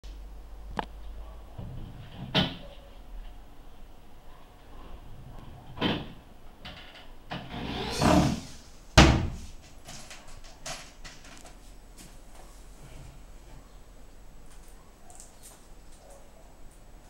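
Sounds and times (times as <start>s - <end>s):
wood scraping slide: 7.5s - 8.7s.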